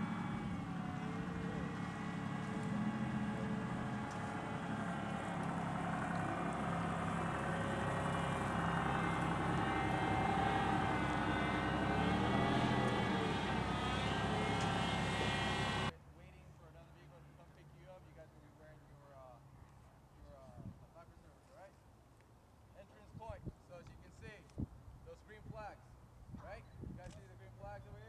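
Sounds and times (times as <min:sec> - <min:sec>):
diesel engine running: 0:00.0 - 0:15.9.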